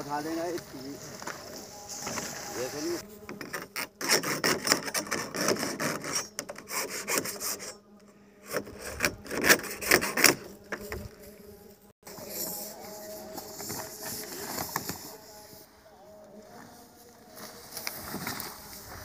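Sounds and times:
pliers scraping plastic cord: 3.3s - 7.8s.

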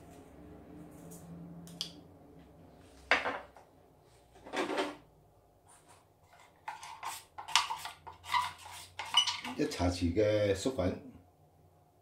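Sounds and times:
utensils clattering in metal bowl: 6.7s - 9.6s.

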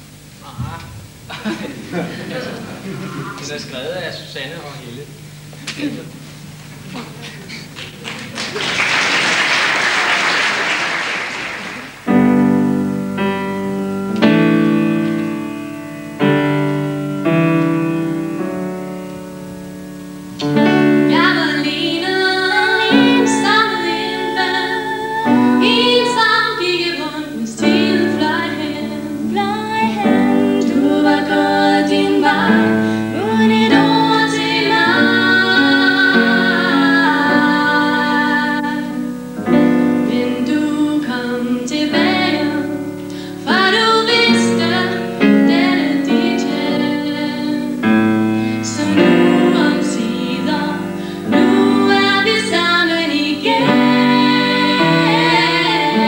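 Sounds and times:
audience applause: 7.0s - 12.1s
piano chords: 11.4s - 56.0s
women singing a ballad: 20.6s - 56.0s.

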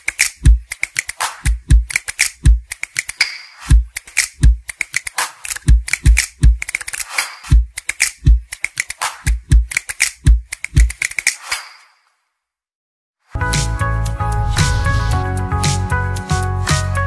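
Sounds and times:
percussive intro music: 0.2s - 2.7s, 13.4s - 16.9s.

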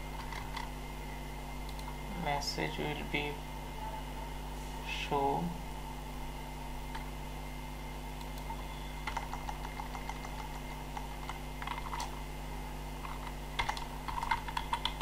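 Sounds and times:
steady low hum: 0.0s - 15.0s
computer keyboard typing: 0.2s - 0.7s, 1.6s - 2.0s, 8.2s - 12.2s, 13.0s - 15.0s.

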